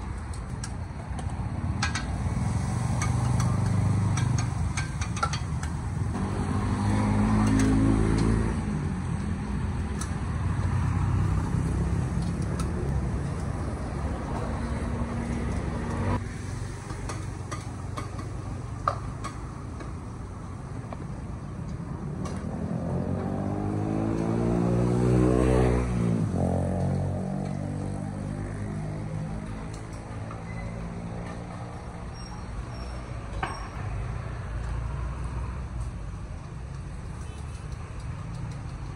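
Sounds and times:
vehicles passing: 0:00.0 - 0:38.9
engine climbing in pitch: 0:06.1 - 0:09.0, 0:22.2 - 0:31.7.

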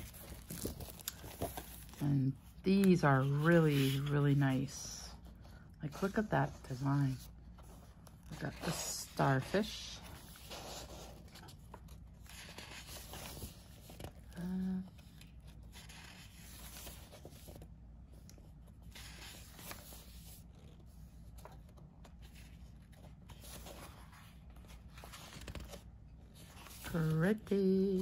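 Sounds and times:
paper rustling and sliding: 0:08.5 - 0:14.2, 0:15.5 - 0:17.7, 0:18.4 - 0:27.3.

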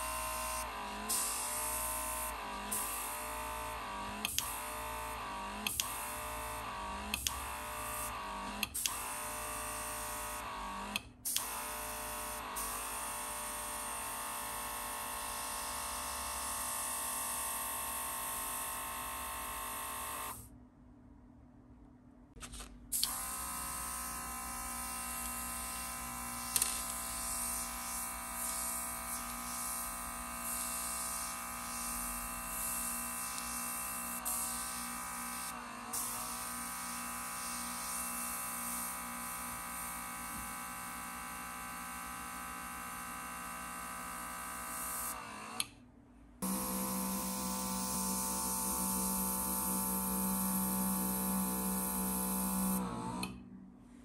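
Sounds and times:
small compressor motor whine: 0:00.0 - 0:20.5, 0:22.9 - 0:45.8, 0:46.4 - 0:54.0
compressor clicks: 0:04.1 - 0:04.7, 0:05.6 - 0:06.1, 0:07.1 - 0:09.2, 0:10.4 - 0:11.7, 0:25.2 - 0:28.6.

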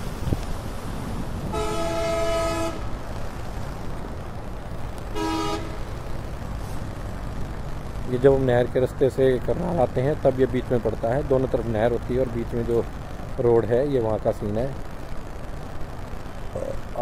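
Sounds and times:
steady background hiss: 0:00.0 - 0:17.0
vehicle horn blasts: 0:01.5 - 0:02.9, 0:05.1 - 0:05.9.

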